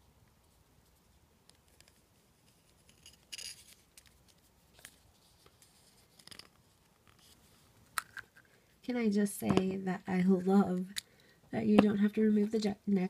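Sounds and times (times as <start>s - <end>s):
plastic figure clicks and rustles: 1.5s - 8.5s.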